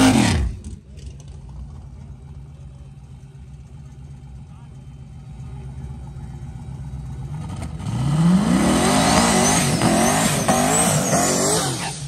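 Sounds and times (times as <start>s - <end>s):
race car engine accelerating: 7.1s - 12.0s.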